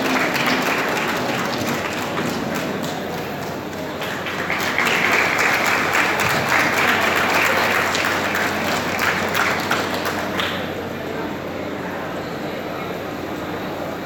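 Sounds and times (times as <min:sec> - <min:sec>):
audience applauding: 0:00.0 - 0:10.8.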